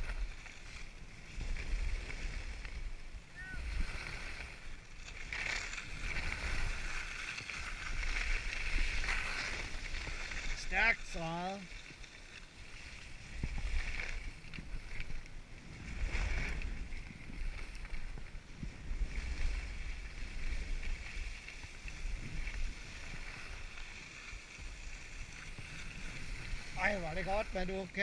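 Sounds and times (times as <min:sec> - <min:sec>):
wind buffeting microphone: 0:00.0 - 0:04.8, 0:13.1 - 0:23.8
skis sliding over snow: 0:00.0 - 0:28.0.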